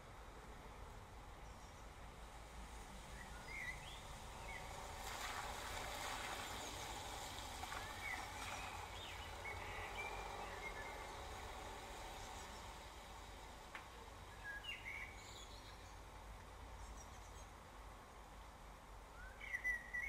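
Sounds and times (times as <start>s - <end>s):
tyres hissing on wet road: 0.9s - 16.7s
rain falling on street: 2.1s - 15.0s.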